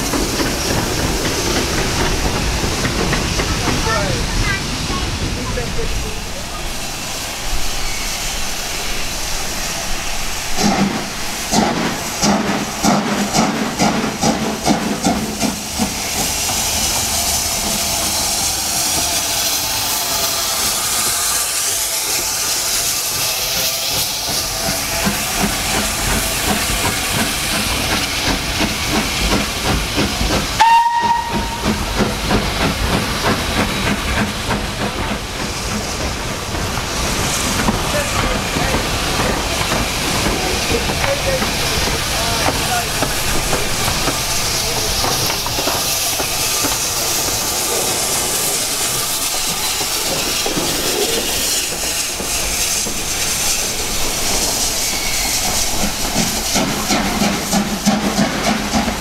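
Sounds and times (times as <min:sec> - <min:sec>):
steam hissing: 0:00.0 - 0:59.0
steam locomotive chuffing: 0:00.0 - 0:59.0
steam whistle blast: 0:30.6 - 0:31.7.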